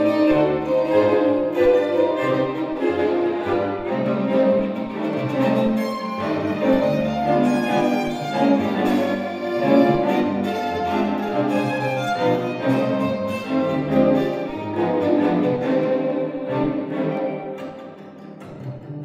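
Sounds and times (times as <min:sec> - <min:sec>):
cellos sustaining low notes: 0:00.0 - 0:19.0
violin melody: 0:00.0 - 0:19.0.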